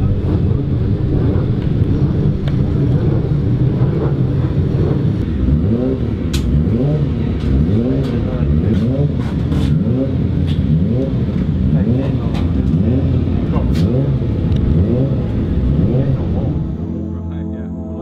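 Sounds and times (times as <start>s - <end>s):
racing motorcycle engines: 0.0s - 18.0s.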